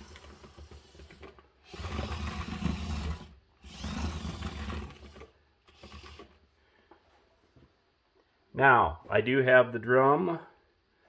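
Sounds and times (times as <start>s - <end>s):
small electric gear motors whirring: 0.0s - 6.4s.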